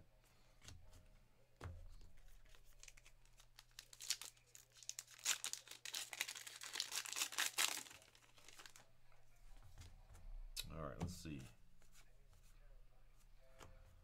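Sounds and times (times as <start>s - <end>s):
wrapper crinkling and tearing: 2.7s - 8.8s.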